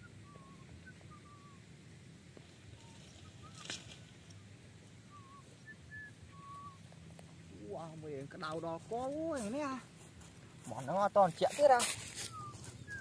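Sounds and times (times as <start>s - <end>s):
faint bird chirps: 0.0s - 7.6s, 12.1s - 13.0s
low background hum: 0.0s - 10.8s.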